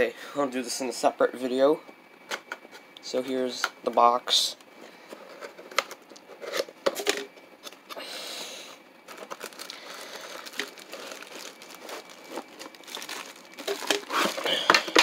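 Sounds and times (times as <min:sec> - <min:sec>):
plastic bag crinkling: 0:09.0 - 0:15.0.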